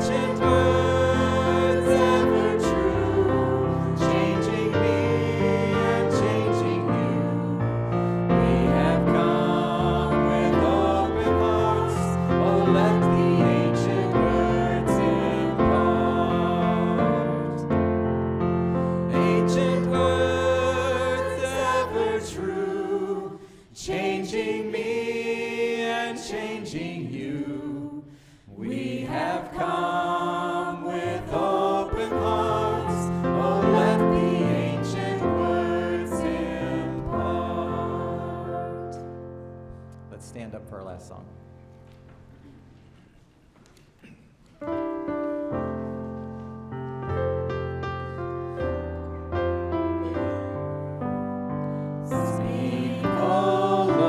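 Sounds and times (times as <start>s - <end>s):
many voices singing together: 0.0s - 17.7s, 19.0s - 39.2s, 52.0s - 54.0s.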